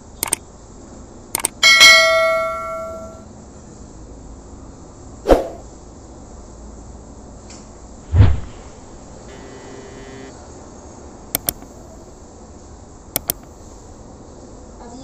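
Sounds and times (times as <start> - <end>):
double mouse click: 0.2 - 0.4, 11.4 - 11.7, 13.2 - 13.5
low whoosh-thump: 8.1 - 8.7.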